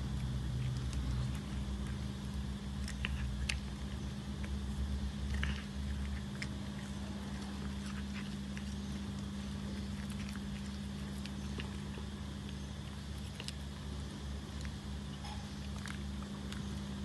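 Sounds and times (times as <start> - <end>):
cat crunching a cracker: 0.0 - 17.0
steady low hum: 0.0 - 17.0.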